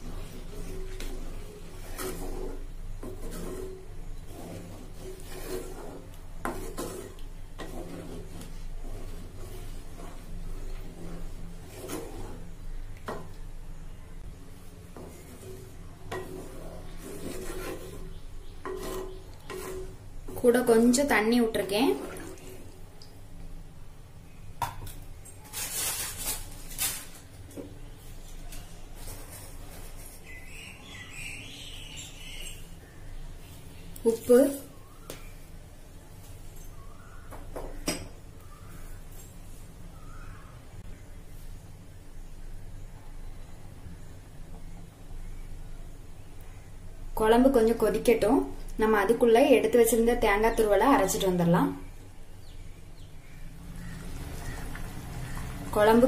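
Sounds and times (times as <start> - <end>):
wooden spatula scraping a pot: 0.0 - 13.3, 14.6 - 22.8, 27.6 - 32.6
liquid splashing: 21.9 - 23.2, 53.8 - 55.9.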